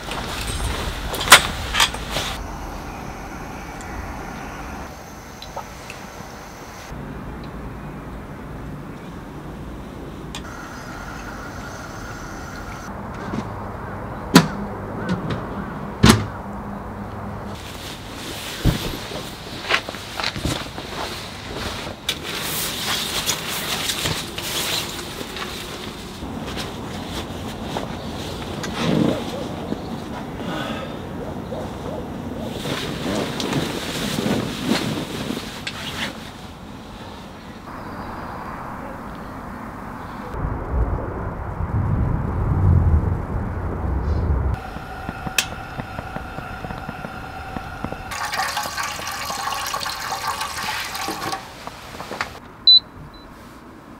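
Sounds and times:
steady low hum: 0.2s - 13.1s, 37.7s - 49.4s
wind on microphone: 37.7s - 48.2s.

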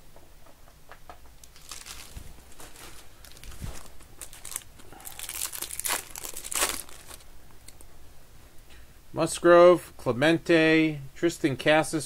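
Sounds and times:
foil wrapper tearing and crinkling: 1.4s - 7.2s.

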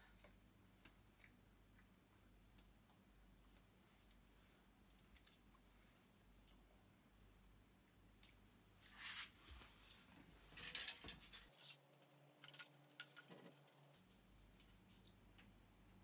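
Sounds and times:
soft rustle: 8.7s - 12.4s.

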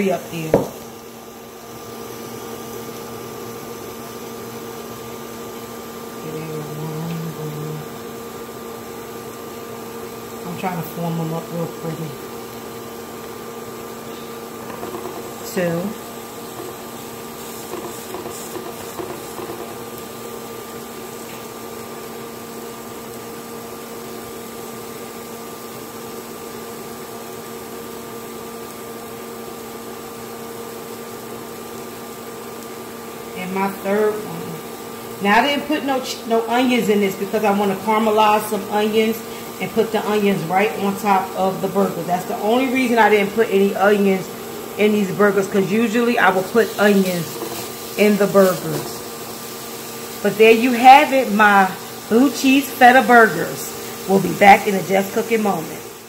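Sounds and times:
kitchen machine humming: 0.0s - 56.0s
utensil tapping grill pan: 14.6s - 15.4s, 16.4s - 19.9s, 47.2s - 47.9s.

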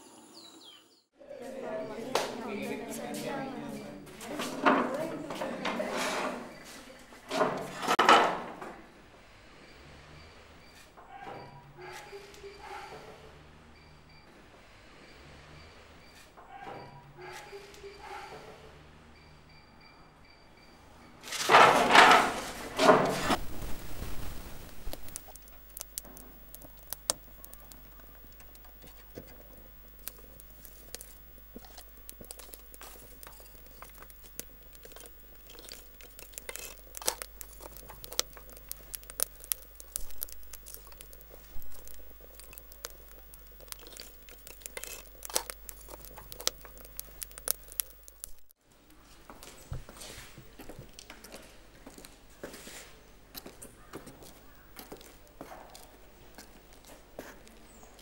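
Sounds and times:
firewood crackling and popping: 21.5s - 48.6s
loud burst of noise: 23.3s - 25.3s.

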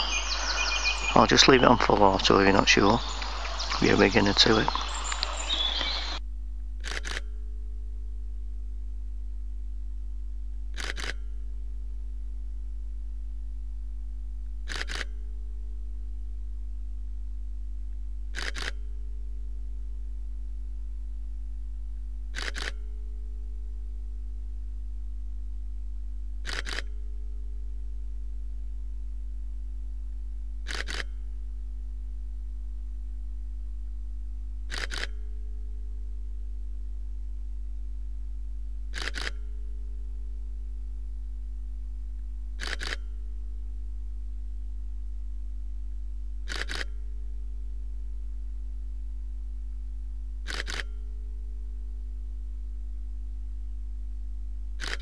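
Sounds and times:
steady low hum: 0.0s - 55.0s
camera shutter double clicks: 6.8s - 7.3s, 10.7s - 11.3s, 14.7s - 15.2s, 18.3s - 18.8s, 22.3s - 22.9s, 26.4s - 27.0s, 30.7s - 31.2s, 34.7s - 35.2s, 38.9s - 39.4s, 42.6s - 43.1s, 46.5s - 47.0s, 50.5s - 51.0s, 54.8s - 55.0s.

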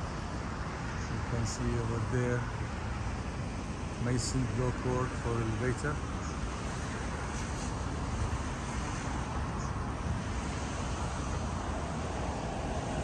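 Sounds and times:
hiss: 4.0s - 13.0s.

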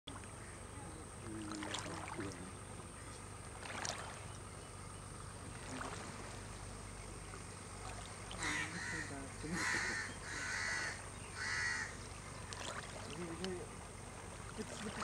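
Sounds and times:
boat engine hum: 0.1s - 15.0s
water washing: 1.2s - 2.6s, 3.5s - 4.4s, 5.5s - 6.6s, 12.4s - 15.0s
short water splashes: 1.2s - 4.5s, 5.4s - 6.6s, 7.2s - 9.2s, 12.1s - 15.0s.

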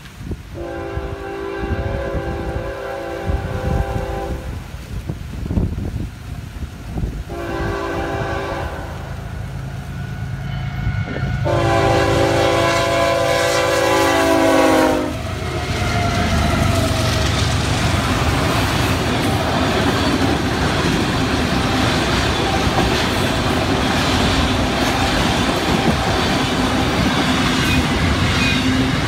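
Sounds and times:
locomotive air horn: 0.6s - 4.7s, 7.3s - 9.1s, 9.8s - 17.2s
diesel locomotive rumble: 1.7s - 29.0s
train wheel clatter: 15.3s - 29.0s.

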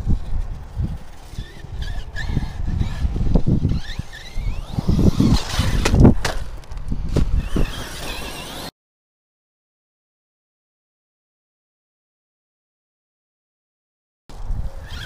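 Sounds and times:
electric motor whining: 0.2s - 6.1s, 7.2s - 8.7s
toy truck landing on gravel: 4.5s - 8.7s.

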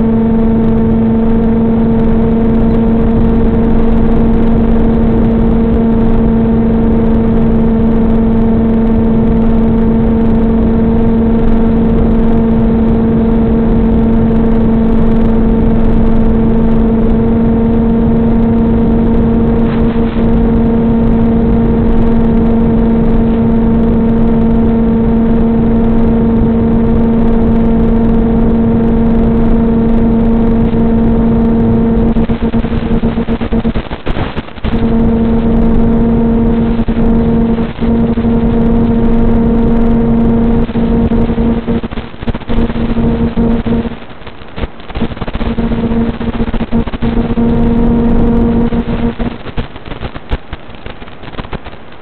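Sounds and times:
electric motor and propeller drone: 34.7s - 43.9s.

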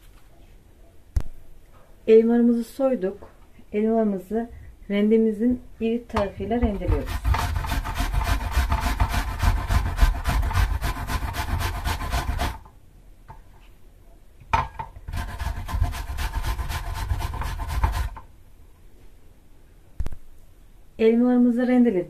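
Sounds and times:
apples grated on box grater: 6.7s - 12.7s, 15.1s - 18.2s.

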